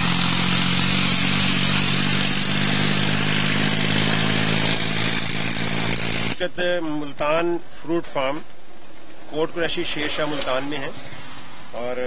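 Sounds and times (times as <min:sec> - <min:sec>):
diesel tractor engine running: 0:00.0 - 0:06.5.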